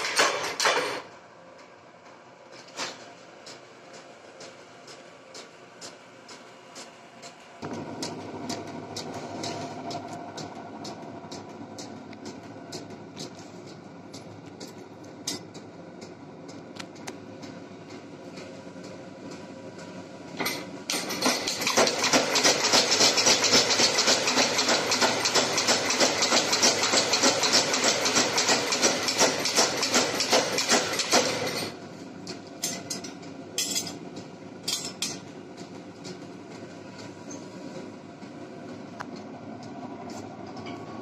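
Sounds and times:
power hammer pounding steel: 20.9s - 31.7s.

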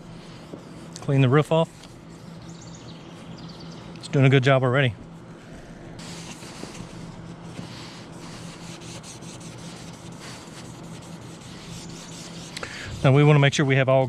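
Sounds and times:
paper towel scrubbing a roof: 0.0s - 3.4s, 5.1s - 14.0s.

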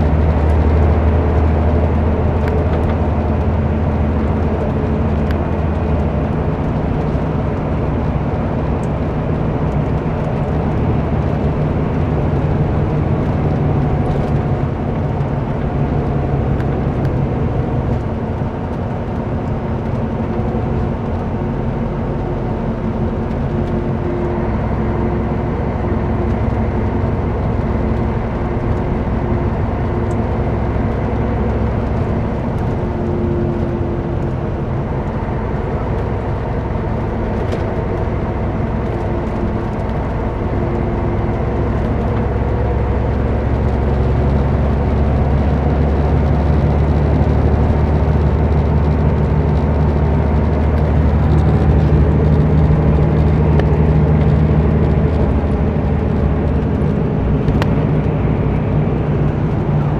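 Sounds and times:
diesel engine running: 0.0s - 59.9s
road and tyre noise: 0.0s - 59.9s.

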